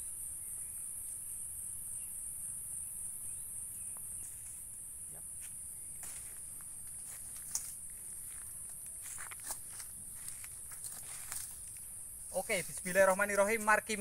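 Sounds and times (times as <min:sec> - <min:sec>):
high-pitched insect chorus: 0:00.0 - 0:14.0
rustling of dry pine needles: 0:06.0 - 0:14.0.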